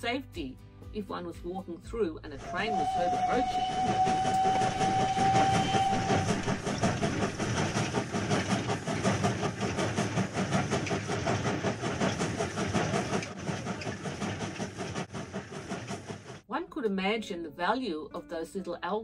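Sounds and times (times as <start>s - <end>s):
train whistle: 2.4s - 7.8s
train clattering on tracks: 2.4s - 16.4s.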